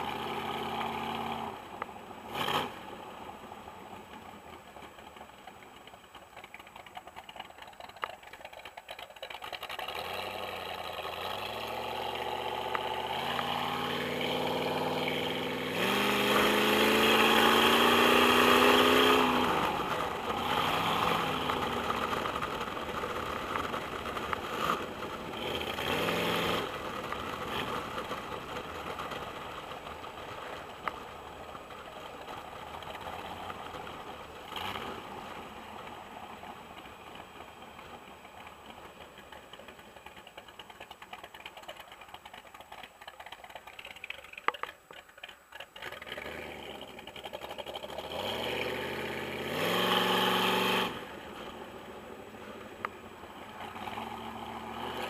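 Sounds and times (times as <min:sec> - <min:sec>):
motorcycle engine revving: 0:00.0 - 0:01.6, 0:02.2 - 0:03.1, 0:09.3 - 0:29.2, 0:34.4 - 0:36.4, 0:43.2 - 0:51.6, 0:53.4 - 0:55.0.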